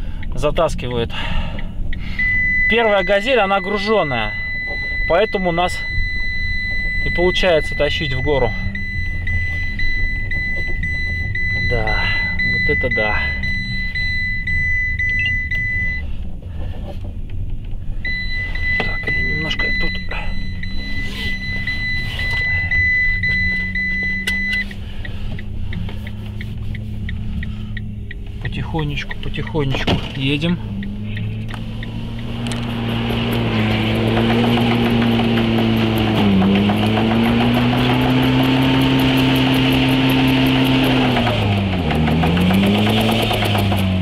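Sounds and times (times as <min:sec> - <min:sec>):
car engine running: 0:00.0 - 0:44.0
high electronic warning tone: 0:02.1 - 0:16.0, 0:18.0 - 0:29.7.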